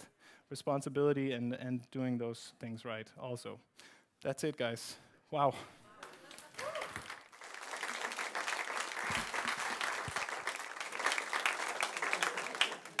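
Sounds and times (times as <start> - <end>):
audience clapping: 6.0 - 13.0.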